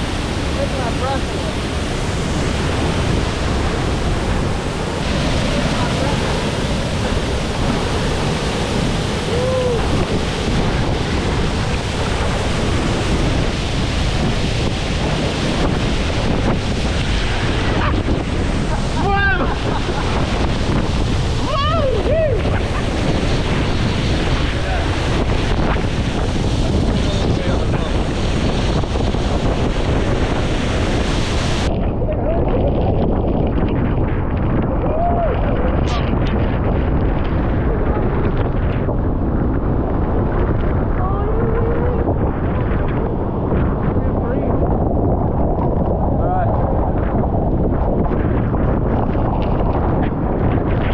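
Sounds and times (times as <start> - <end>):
waterfall rushing: 0.0 - 31.8
wind buffeting microphone: 0.0 - 50.9.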